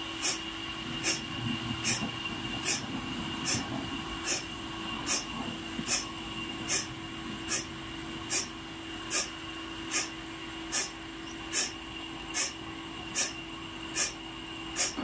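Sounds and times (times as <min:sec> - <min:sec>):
sawmill machine humming: 0:00.0 - 0:15.0.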